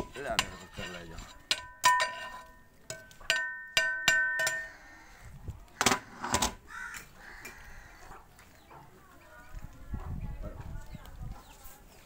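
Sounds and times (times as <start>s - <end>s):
metal ladle knocking on pot: 1.5s - 2.3s, 2.9s - 4.7s.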